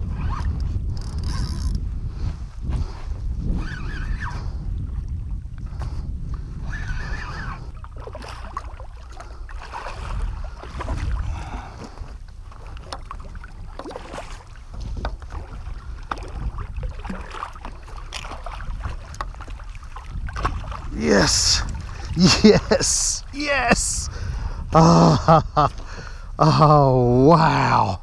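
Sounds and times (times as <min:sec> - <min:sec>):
wind rumbling on microphone: 0:00.0 - 0:28.0
water sloshing against kayak hull: 0:00.2 - 0:24.6
fish splashing: 0:07.8 - 0:20.9.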